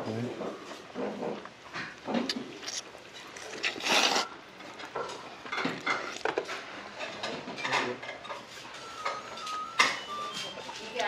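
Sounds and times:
noodles being slurped: 2.3s - 4.4s.

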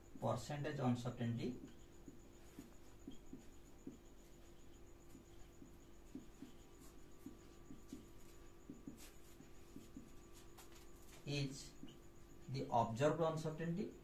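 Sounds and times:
marker writing on whiteboard: 1.5s - 12.4s.

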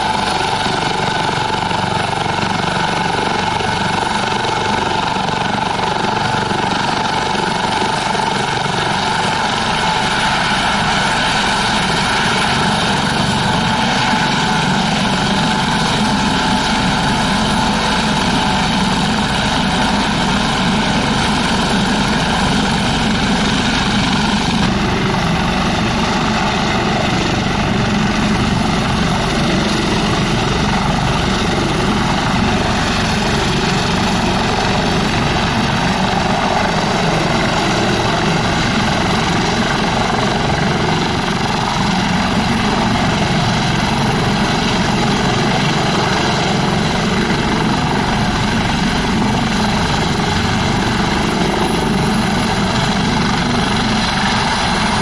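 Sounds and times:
helicopter turbine whine: 0.0s - 55.0s.

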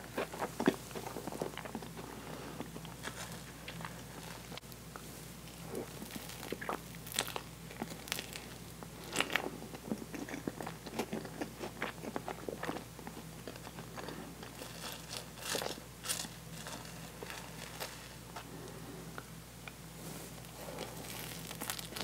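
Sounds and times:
sticky wet chewing: 5.7s - 15.8s.

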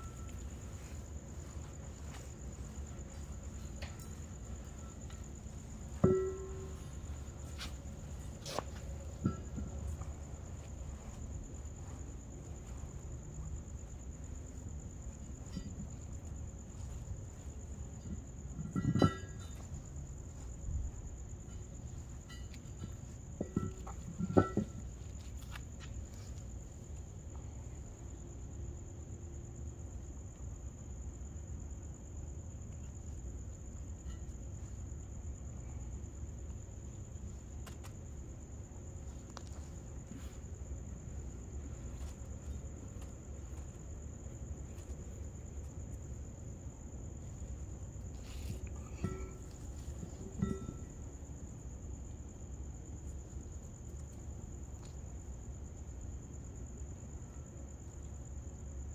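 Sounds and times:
crickets chirring: 0.0s - 58.9s.

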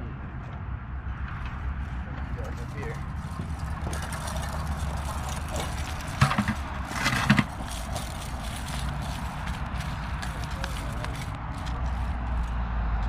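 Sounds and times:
plastic bucket knocks and rattles: 2.9s - 9.3s.

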